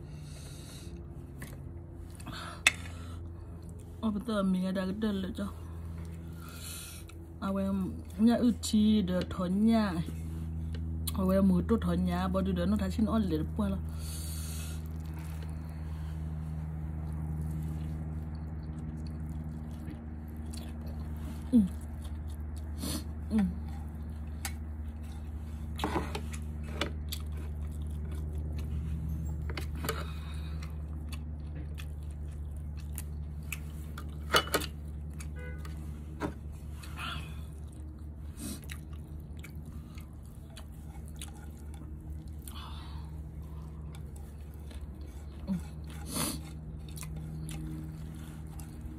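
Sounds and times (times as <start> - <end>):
steady low hum: 0.0 - 48.9
person chewing: 5.6 - 8.2, 13.8 - 48.9.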